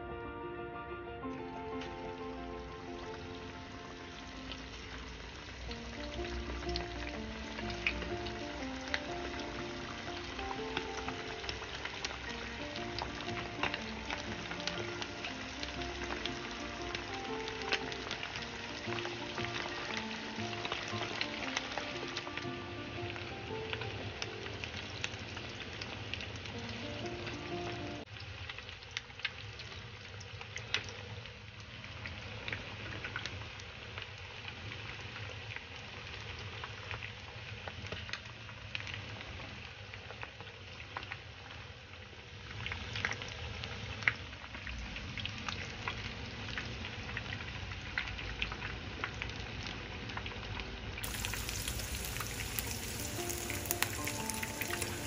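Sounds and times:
background music: 0:00.0 - 0:25.8, 0:26.4 - 0:28.1, 0:51.0 - 0:55.0
chicken deep-frying in oil: 0:01.8 - 0:55.0.

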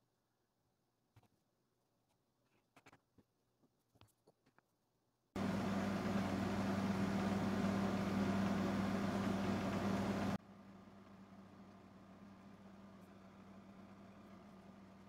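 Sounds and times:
machine hum with rushing noise: 0:05.4 - 0:10.4.

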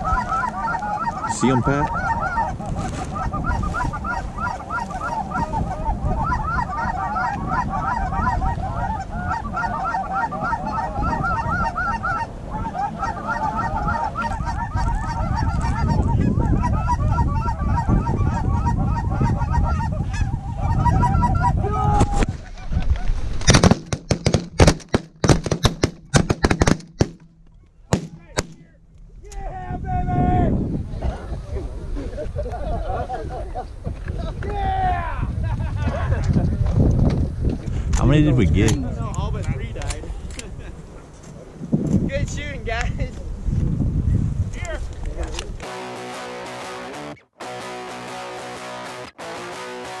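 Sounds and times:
geese honking: 0:00.0 - 0:21.7, 0:45.6 - 0:50.0
shotgun blasts: 0:23.5 - 0:27.3, 0:27.9 - 0:28.6.

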